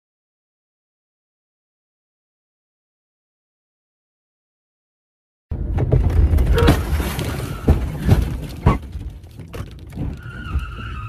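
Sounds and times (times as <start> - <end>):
car crash rumble and bangs: 5.5 - 11.0.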